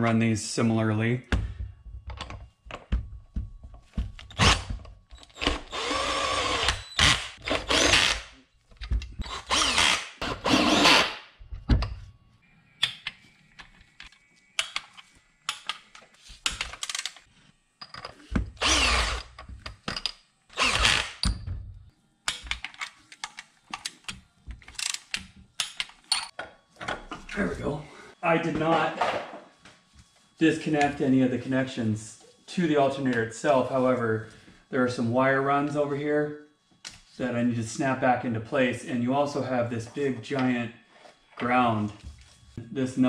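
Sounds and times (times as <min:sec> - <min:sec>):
electric ratchet whirring: 0:04.2 - 0:08.4, 0:09.2 - 0:11.2, 0:18.5 - 0:19.5, 0:20.5 - 0:21.4.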